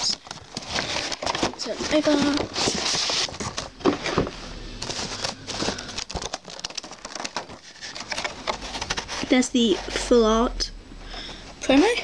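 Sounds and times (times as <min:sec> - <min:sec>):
plastic tray clicks and crinkles: 0:04.9 - 0:09.1.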